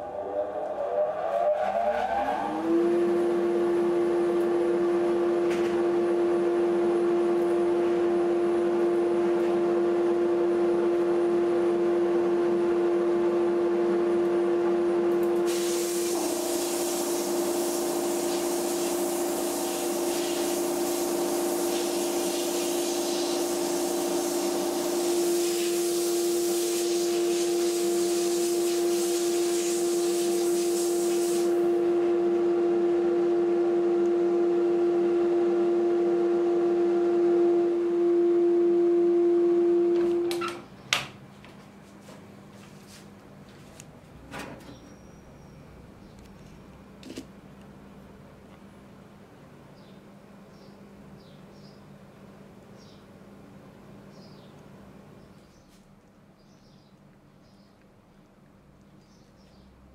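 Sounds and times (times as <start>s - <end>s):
air and grit hissing: 15.5s - 31.6s.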